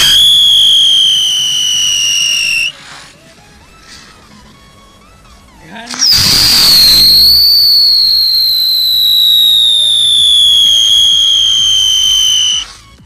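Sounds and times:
firework whistle falling in pitch: 0.0s - 3.0s, 5.9s - 13.0s
firework hissing: 0.0s - 4.5s, 5.9s - 13.0s.

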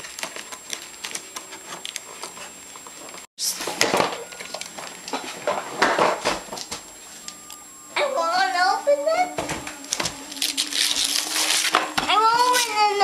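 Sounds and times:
wrapping paper ripping: 9.9s - 13.0s
wrapping paper crinkling: 10.3s - 11.8s.

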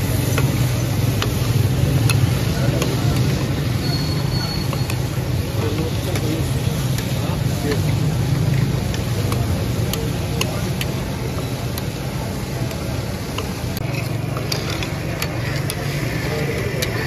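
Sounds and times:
liver frying: 0.0s - 17.0s
roadside traffic rumble: 0.0s - 17.0s.

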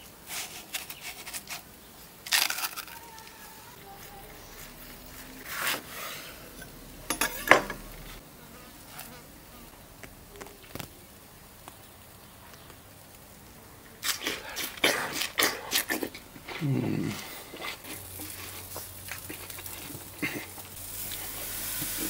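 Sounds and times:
crunchy bites into watermelon: 2.2s - 3.0s, 14.0s - 20.0s
person murmuring mm: 14.3s - 17.9s.

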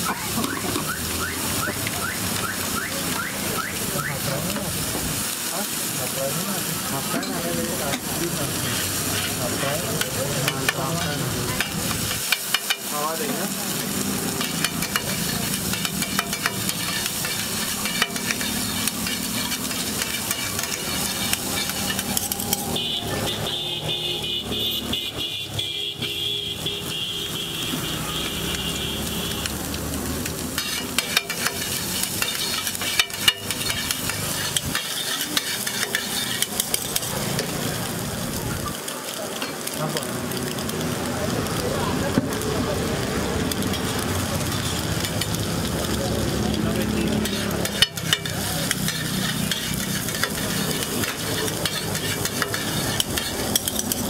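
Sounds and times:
food sizzling on a griddle: 0.0s - 54.0s
spatula clacks on iron: 11.6s - 12.9s, 14.4s - 22.6s, 30.6s - 37.5s, 47.2s - 54.0s
metal spatulas scraping: 14.4s - 22.8s, 30.6s - 37.0s, 47.2s - 54.0s.

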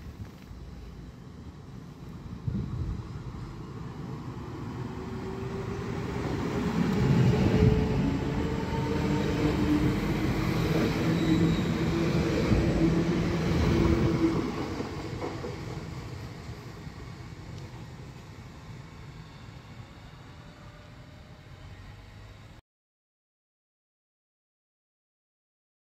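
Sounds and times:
electric train passing: 0.2s - 22.6s.

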